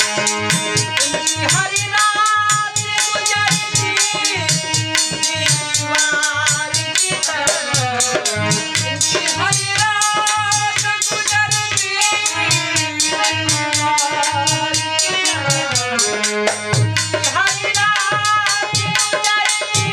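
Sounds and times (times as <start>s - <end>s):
drum beating rhythm: 0.0s - 19.9s
harmonium chords: 0.0s - 19.9s
jingling metal percussion: 0.0s - 19.9s.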